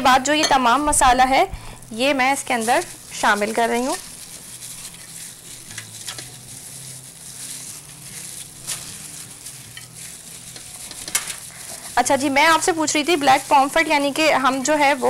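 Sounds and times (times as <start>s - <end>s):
paste scraping over fish: 2.5s - 15.0s.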